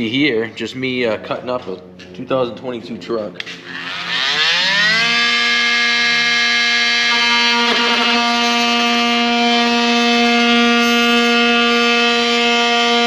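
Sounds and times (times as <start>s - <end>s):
power tool whining: 3.4s - 13.0s.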